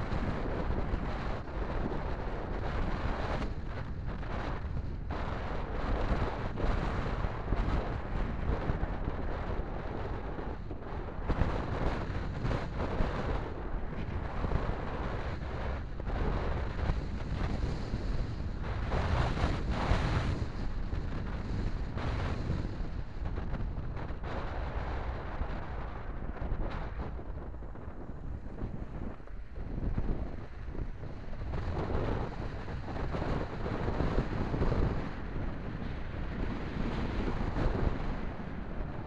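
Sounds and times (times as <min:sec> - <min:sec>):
car engine and tyres rumbling: 0:00.0 - 0:39.0
wind noise on microphone: 0:00.0 - 0:39.0.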